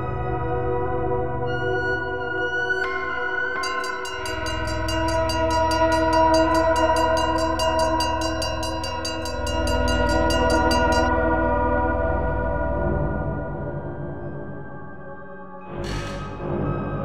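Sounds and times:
fast even ticking: 0:03.6 - 0:11.1
drone chord of steady tones: 0:03.6 - 0:13.8.

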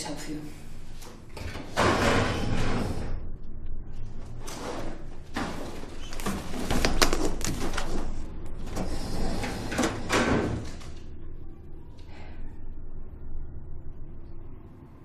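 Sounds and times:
metal sliding and clattering: 0:07.6 - 0:10.8.

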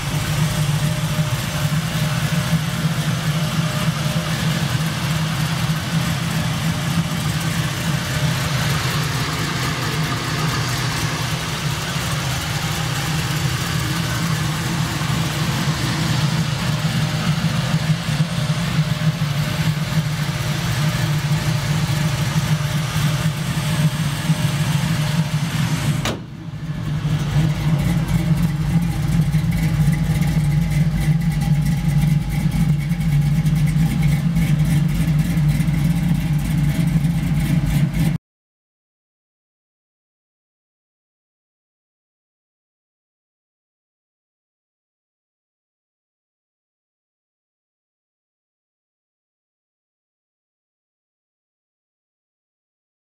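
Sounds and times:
car engine idling: 0:00.0 - 0:38.2.

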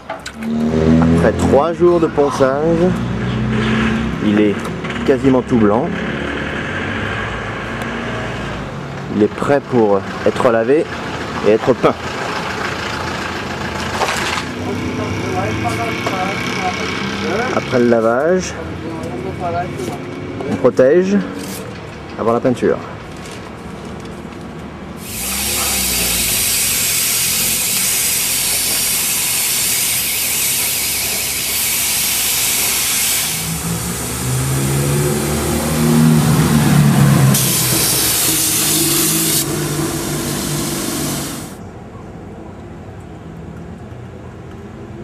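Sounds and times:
paint spray gun hissing: 0:25.0 - 0:34.6, 0:37.3 - 0:41.6
low hum: 0:33.4 - 0:41.6.

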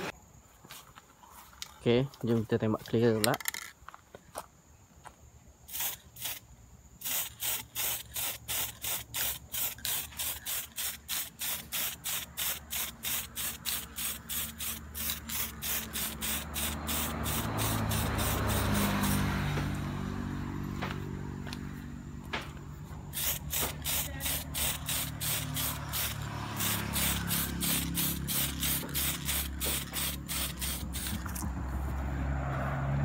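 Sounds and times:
aerosol spray can hissing: 0:05.7 - 0:06.4, 0:07.0 - 0:19.5, 0:23.1 - 0:31.4.

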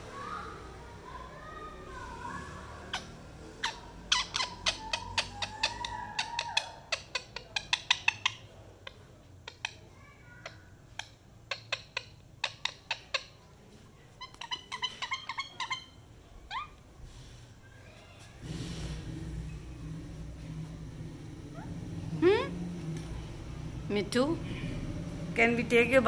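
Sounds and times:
parakeet clicking and chirping: 0:02.9 - 0:09.8, 0:10.4 - 0:13.4, 0:14.2 - 0:16.8.

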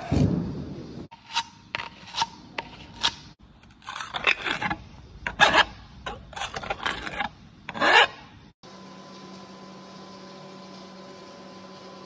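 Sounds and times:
hand scraper scraping rusty metal: 0:01.1 - 0:08.4.

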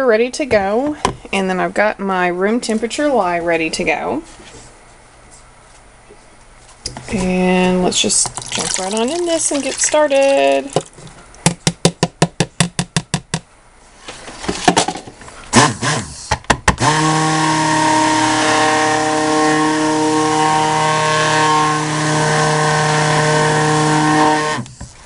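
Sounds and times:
stick blender motor running: 0:16.8 - 0:24.8.

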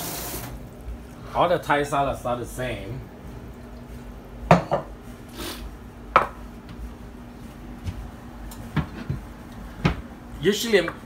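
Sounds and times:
steady low hum: 0:00.0 - 0:11.0
bowls and utensils knocking: 0:04.5 - 0:04.9.

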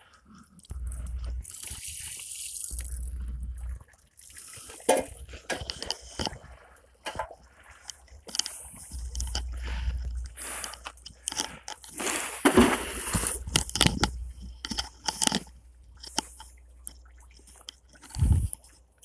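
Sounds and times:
wind rumble on microphone: 0:18.1 - 0:18.6.

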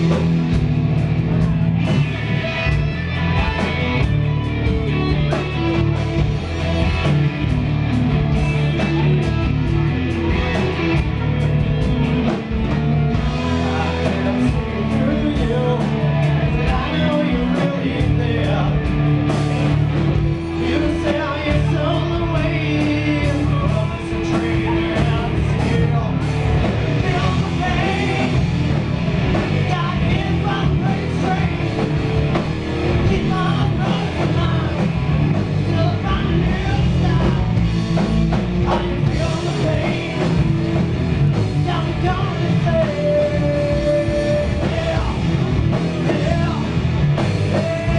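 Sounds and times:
bass guitar: 0:00.0 - 0:47.9
distorted electric guitars: 0:00.0 - 0:47.9
drum kit: 0:00.0 - 0:47.9
man singing: 0:12.0 - 0:19.2, 0:20.5 - 0:37.7, 0:38.6 - 0:40.8, 0:41.5 - 0:47.9.

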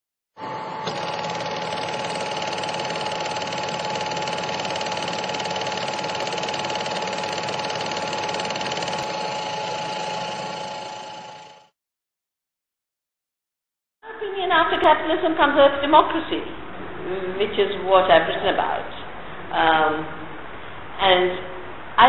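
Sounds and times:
machine hum: 0:00.4 - 0:11.7
machine clattering: 0:00.9 - 0:11.6.

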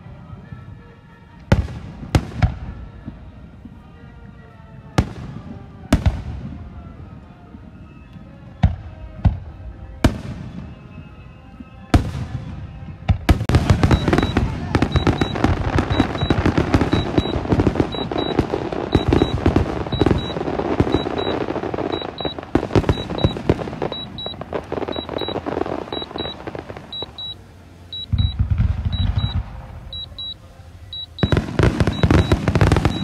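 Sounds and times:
fireworks cracking and banging: 0:12.0 - 0:33.0
short high beep: 0:13.8 - 0:33.0.

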